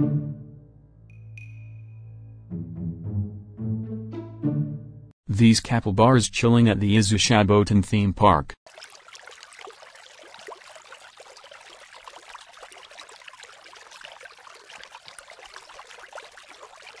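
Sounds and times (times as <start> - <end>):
bath water trickling and splashing: 8.6 - 17.0.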